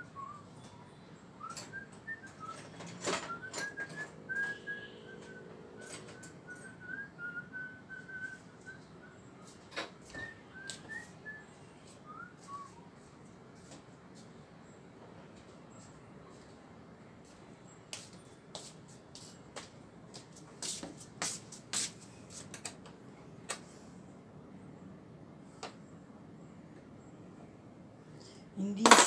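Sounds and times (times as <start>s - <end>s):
person whistling a tune: 0.0s - 0.6s, 1.4s - 2.7s, 3.3s - 12.9s.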